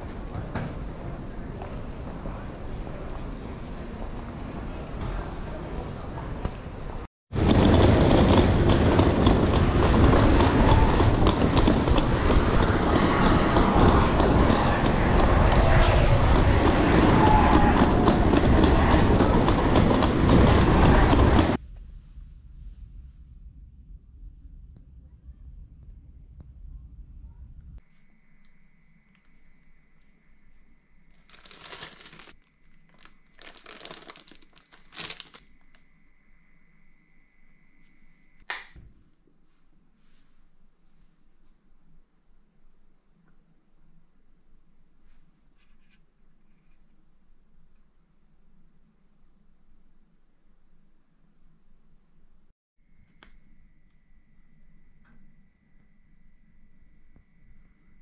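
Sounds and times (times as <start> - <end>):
suitcase wheels rumbling on paving: 7.4 - 15.3, 31.2 - 35.4
plastic packaging crinkling: 31.2 - 35.4.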